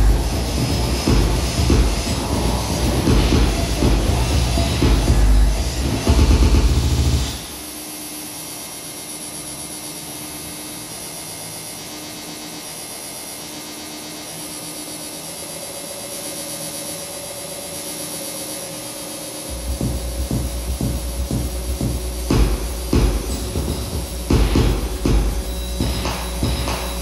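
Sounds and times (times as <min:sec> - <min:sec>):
loud noisy rumble: 0:00.0 - 0:07.6, 0:19.5 - 0:27.0
higher wavering tone: 0:19.5 - 0:27.0.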